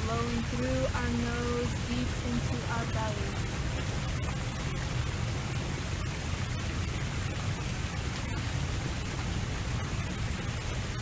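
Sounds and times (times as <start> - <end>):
low outdoor rumble: 0.0 - 11.0.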